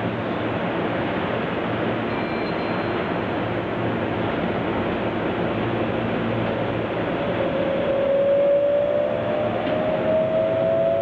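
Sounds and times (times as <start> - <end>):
train wheels rumbling on rail: 0.0 - 11.0
train motor whine: 7.1 - 11.0.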